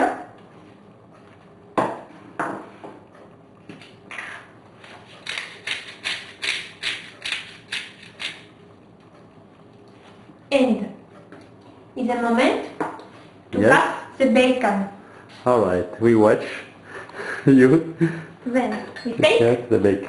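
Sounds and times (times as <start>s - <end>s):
pepper mill grinding: 5.2s - 8.5s.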